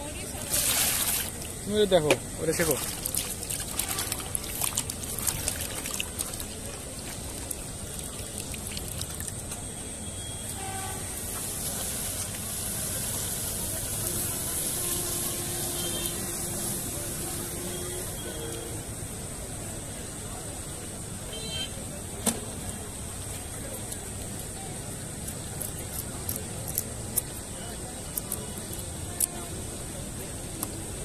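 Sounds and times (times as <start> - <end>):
water running and splashing: 0.3 - 9.5.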